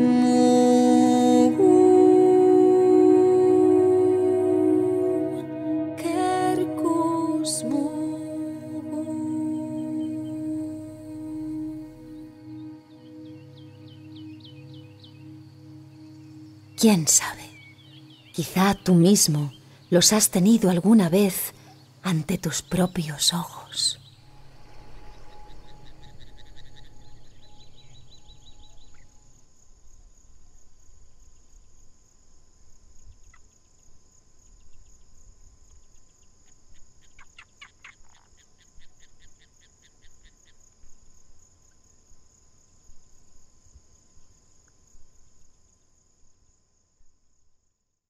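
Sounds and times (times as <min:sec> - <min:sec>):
insects trilling: 0:00.0 - 0:47.1
low rush: 0:22.7 - 0:29.2.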